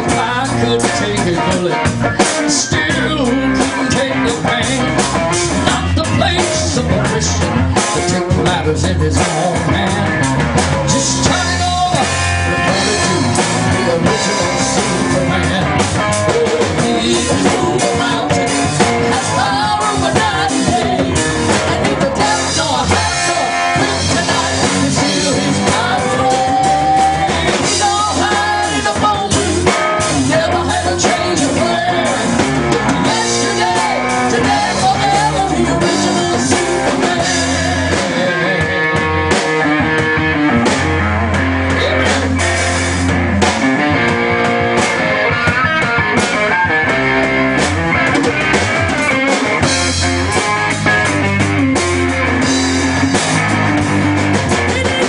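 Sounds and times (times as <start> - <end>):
male and female vocals: 0.0 - 38.8, 54.6 - 55.0
drum kit: 0.0 - 55.0
electric guitars: 0.0 - 55.0
keyboard: 0.0 - 55.0.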